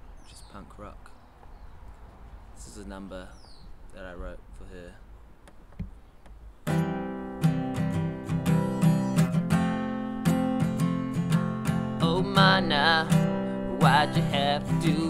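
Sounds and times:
acoustic guitar strumming chords: 0:06.7 - 0:15.0.

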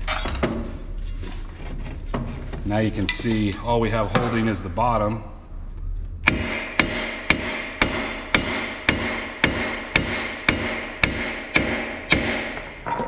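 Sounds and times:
sledgehammer hitting steel: 0:06.2 - 0:13.0.

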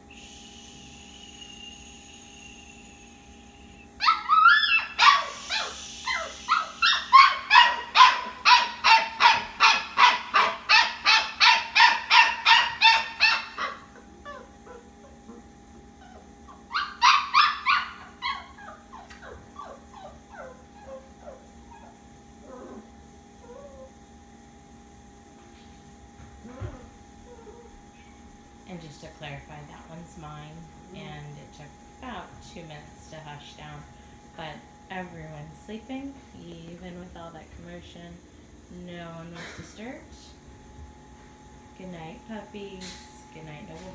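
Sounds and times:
puppy whimpering: 0:04.0 - 0:07.8, 0:13.0 - 0:23.9, 0:26.4 - 0:28.2
puppy yelping: 0:04.0 - 0:15.4, 0:16.0 - 0:23.9.

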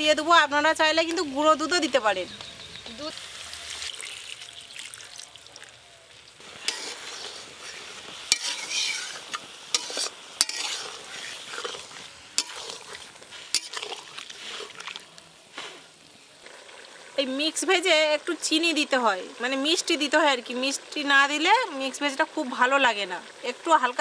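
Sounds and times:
low sizzle: 0:00.0 - 0:24.0
spatula scraping metal pan: 0:06.5 - 0:14.8.

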